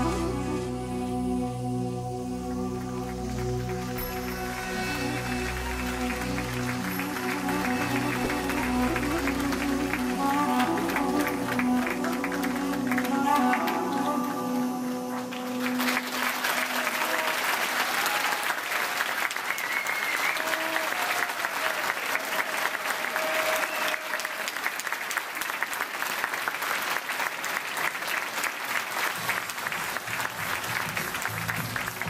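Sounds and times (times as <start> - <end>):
music: 0.0 - 17.7, 29.2 - 32.0
audience applauding: 2.7 - 32.0.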